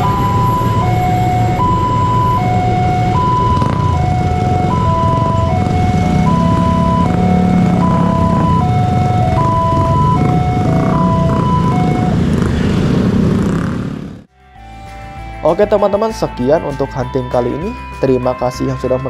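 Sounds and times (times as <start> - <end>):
level crossing warning chime: 0.0 - 12.2
motorcycle engines running: 0.0 - 14.3.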